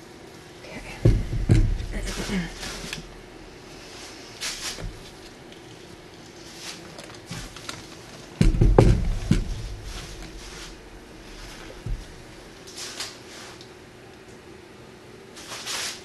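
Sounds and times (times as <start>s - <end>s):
faint taps and rustles: 0.8s - 3.3s, 4.4s - 5.8s, 6.7s - 12.4s
canvas thump with rattle: 1.0s - 3.1s, 8.4s - 12.4s.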